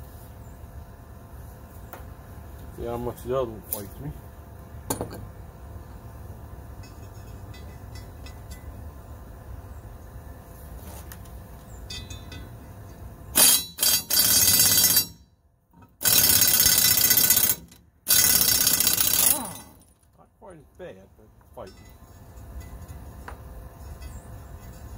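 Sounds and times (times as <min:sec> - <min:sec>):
impact wrench hammering: 0:13.4 - 0:15.2.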